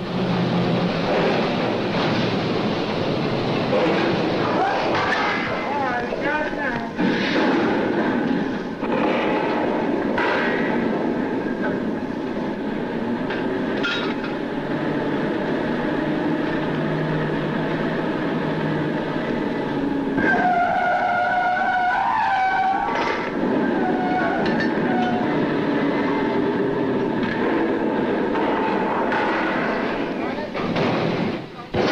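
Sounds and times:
drilling rig machinery running: 7.0s - 31.8s.

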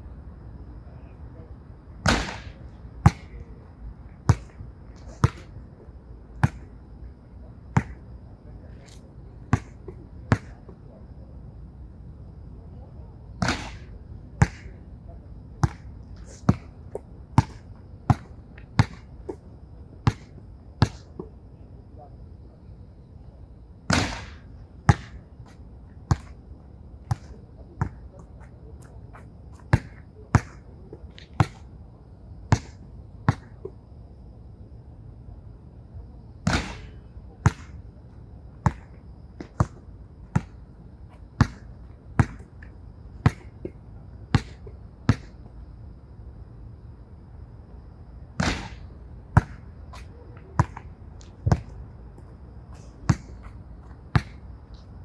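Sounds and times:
basketball bouncing on hard court: 41.4s - 41.6s, 42.2s - 42.5s, 49.4s - 49.6s, 50.6s - 50.8s, 54.1s - 54.4s
ball banging off backboard and rim: 48.4s - 48.8s.

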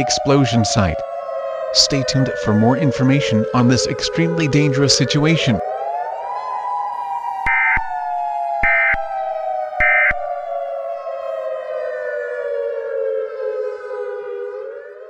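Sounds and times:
siren wailing: 0.0s - 15.0s
electronic data bursts: 8.6s - 9.0s, 9.8s - 10.2s.

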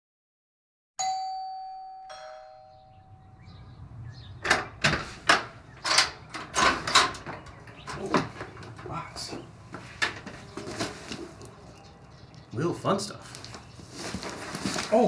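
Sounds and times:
two-note doorbell chime: 1.0s - 3.6s.

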